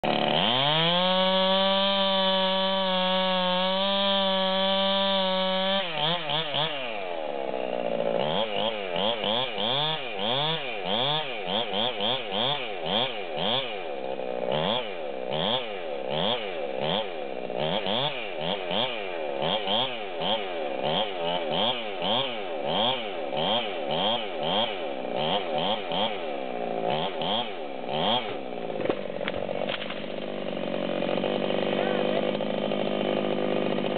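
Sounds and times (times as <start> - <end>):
chainsaw cutting a log: 0.0 - 33.9.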